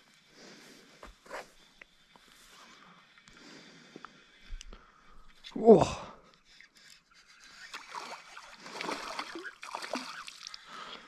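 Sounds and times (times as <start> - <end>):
fish splashing at water surface: 7.6 - 10.6.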